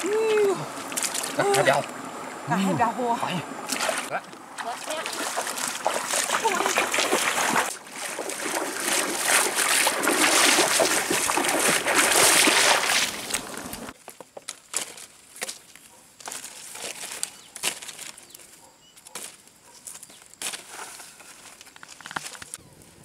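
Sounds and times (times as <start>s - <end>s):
feet splashing through water: 0.0s - 1.9s, 3.6s - 13.9s
dry sticks snapping and rustling: 13.2s - 22.6s.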